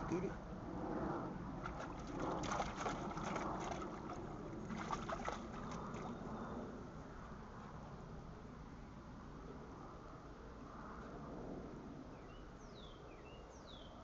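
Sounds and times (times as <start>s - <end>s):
dog splashing through water: 1.6s - 6.2s.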